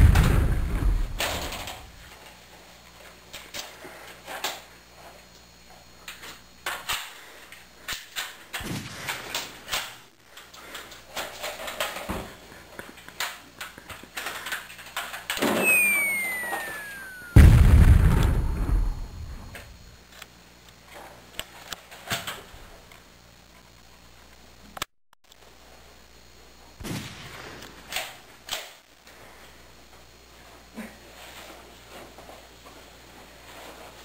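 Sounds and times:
whistle falling in pitch: 15.4s - 19.6s
loud low boom: 15.7s - 19.6s.

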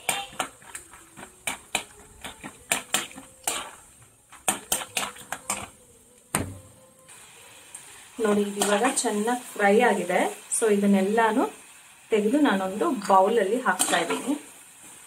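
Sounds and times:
ladle clinking and scraping pan: 0.0s - 5.8s
peanuts deep-frying in oil: 0.0s - 15.0s.

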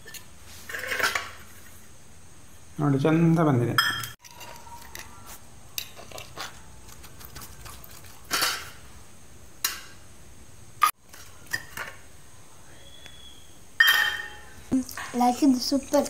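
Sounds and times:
metal spoon clinking on steel: 13.8s - 14.5s.

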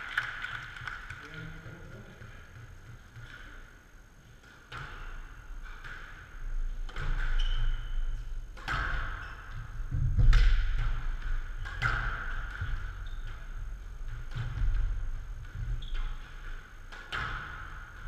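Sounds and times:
squash ball knocks: 8.5s - 18.0s.

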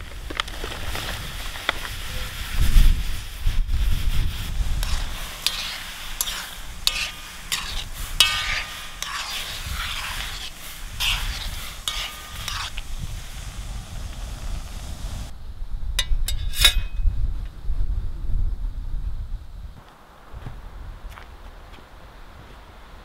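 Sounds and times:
metal utensil scraping skillet: 4.7s - 12.8s, 16.0s - 17.0s.

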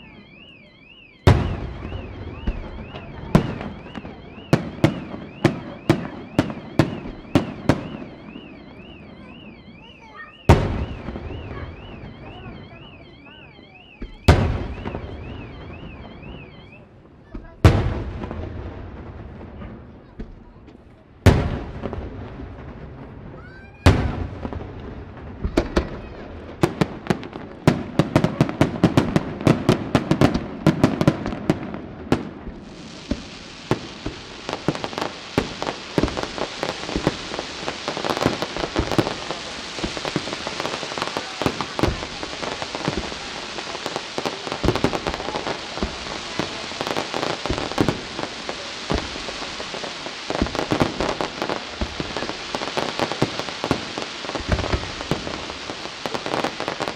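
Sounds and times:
firework crackling: 0.0s - 16.8s, 17.4s - 56.9s
firework shells bursting: 32.2s - 56.9s.

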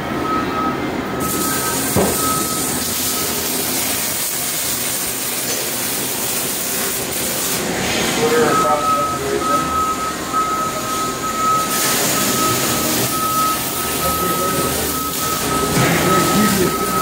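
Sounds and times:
steady shop hum: 0.0s - 17.0s
welding arc hissing and crackling: 1.2s - 8.3s, 11.6s - 17.0s.

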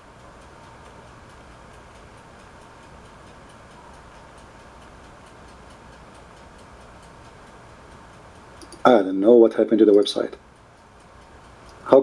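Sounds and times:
faint even ticking: 0.0s - 12.0s
low steady hiss: 0.0s - 12.0s
thin steady tone: 0.0s - 12.0s.

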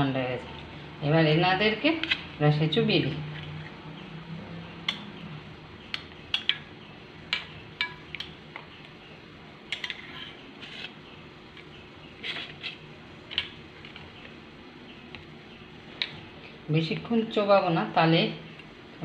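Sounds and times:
spoon tapping metal pot: 7.3s - 8.3s.

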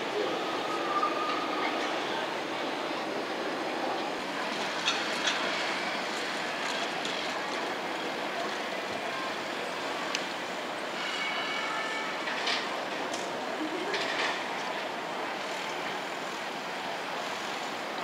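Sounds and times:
distant city street hiss: 7.8s - 18.0s.

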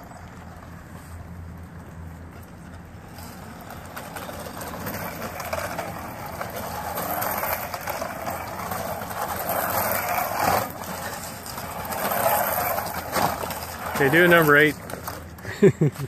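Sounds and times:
scooter wheels rattling on pavers: 0.0s - 16.0s.

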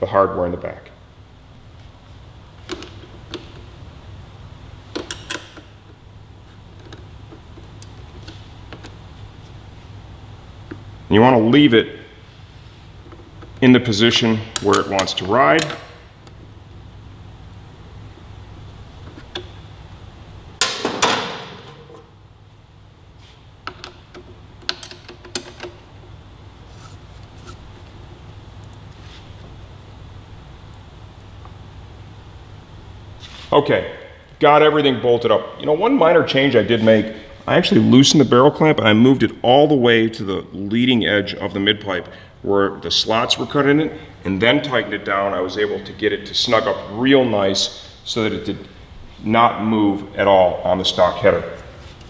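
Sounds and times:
steady low hum: 0.0s - 52.0s
wrench metal clicks: 4.9s - 5.7s, 14.5s - 16.4s
tools clanking on metal: 5.0s - 5.7s.

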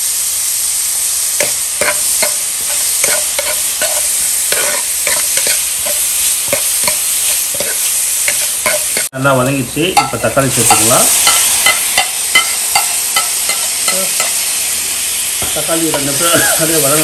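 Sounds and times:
vegetables sizzling in hot oil: 0.0s - 17.0s
spatula scraping and tapping pan: 1.4s - 9.1s, 10.0s - 14.4s.

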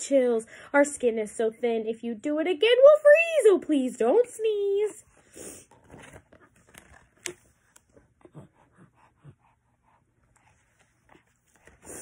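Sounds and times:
book page turning: 5.7s - 8.0s.

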